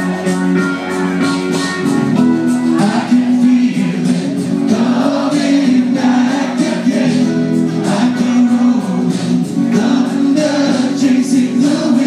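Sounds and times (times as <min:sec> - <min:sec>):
acoustic guitar: 0:00.0 - 0:12.0
electric guitar: 0:00.0 - 0:12.0
man singing: 0:02.6 - 0:12.0.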